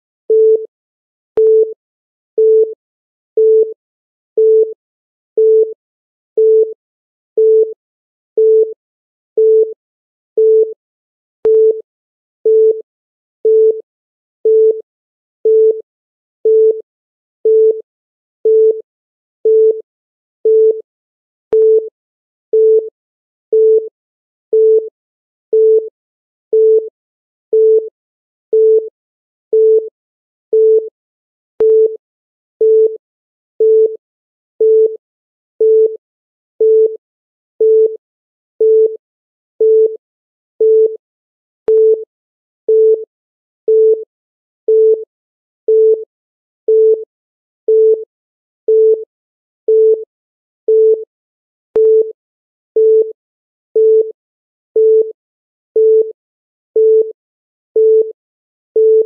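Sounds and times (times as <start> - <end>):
timer beeps: 0.3 - 0.7, 1.4 - 1.8, 21.5 - 21.9, 31.6 - 32.0, 41.7 - 42.0, 42.7 - 43.0, 47.7 - 48.0, 48.7 - 49.0, 49.7 - 50.1, 50.7 - 51.1, 51.8 - 52.1, 52.8 - 53.2, 53.8 - 54.1, 54.8 - 55.1, 55.8 - 56.1, 56.8 - 57.1, 57.8 - 58.1, 58.8 - 59.0.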